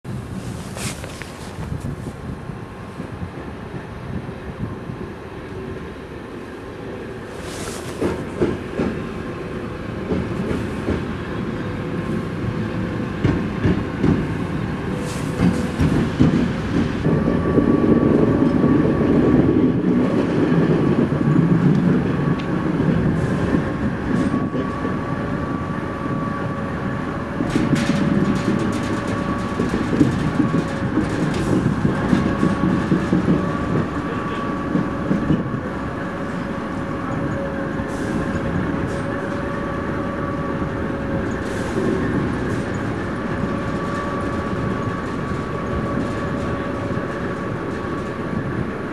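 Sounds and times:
diesel locomotive engine: 0:00.1 - 0:48.9
wheel clicks and clanks on rails: 0:27.4 - 0:33.9.

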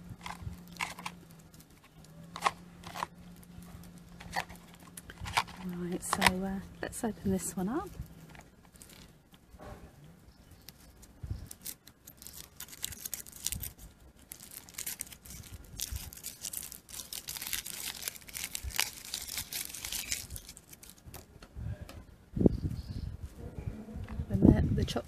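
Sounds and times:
foil wrapper crinkling and tearing: 0:00.0 - 0:09.2, 0:10.5 - 0:21.3.

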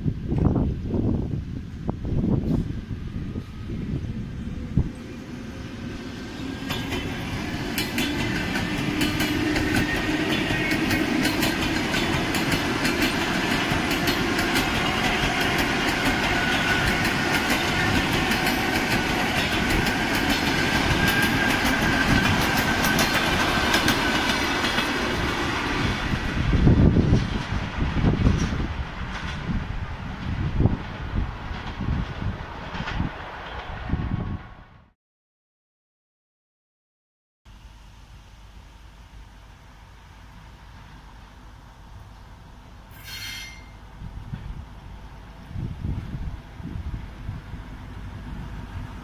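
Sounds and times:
train whine: 0:00.0 - 0:35.0, 0:37.5 - 0:49.0
train wheels clicking over rail joints: 0:06.4 - 0:26.0, 0:26.6 - 0:33.8.

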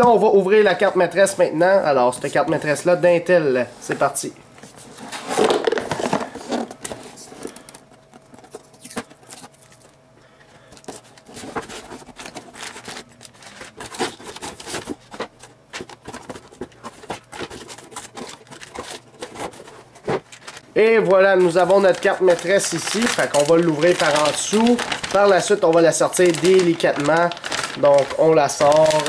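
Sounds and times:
cardboard box rustling and scraping: 0:11.2 - 0:20.6.

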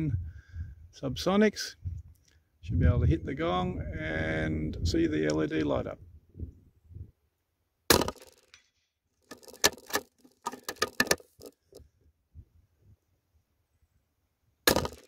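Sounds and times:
rifle shot: 0:07.9 - 0:08.4, 0:14.7 - 0:15.0.

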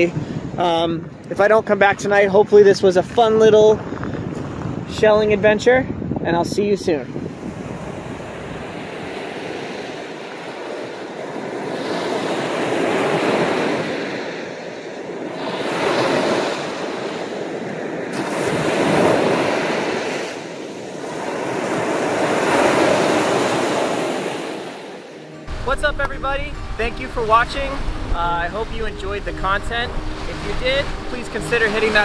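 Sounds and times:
surf washing onto beach: 0:07.1 - 0:32.0.

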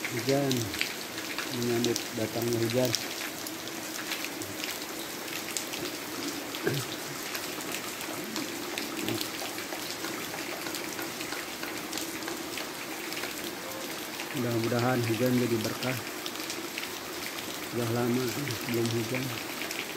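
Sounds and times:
rain on roofs and ground: 0:00.0 - 0:19.9.

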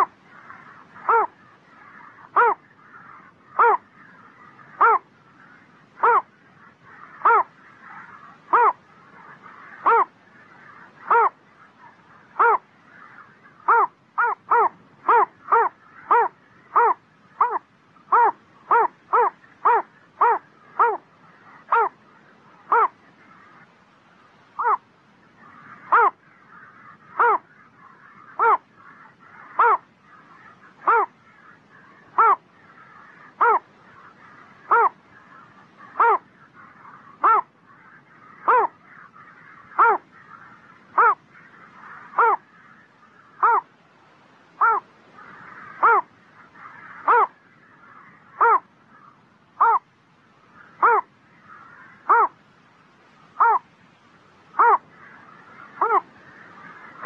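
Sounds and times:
heron calling: 0:00.0 - 0:43.8, 0:44.5 - 0:53.7, 0:54.3 - 0:57.0
faint steady background noise: 0:00.0 - 0:57.0.

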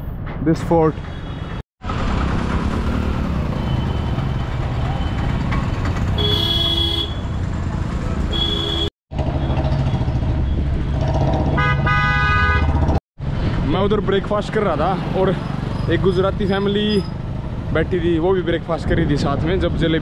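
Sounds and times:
traffic engines running: 0:00.0 - 0:20.0
car horns honking: 0:06.1 - 0:07.4, 0:08.2 - 0:08.9, 0:11.5 - 0:12.8.

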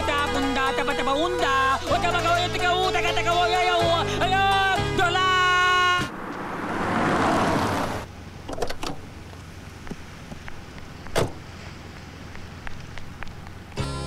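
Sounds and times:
faint low engine hum: 0:03.9 - 0:14.0
car door shutting: 0:07.6 - 0:09.1, 0:11.1 - 0:11.5
car door latch clicks: 0:08.5 - 0:09.1, 0:11.1 - 0:11.4.

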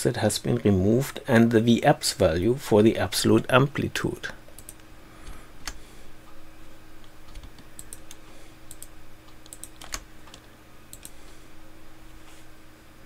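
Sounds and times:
faint low hum: 0:00.0 - 0:13.0.

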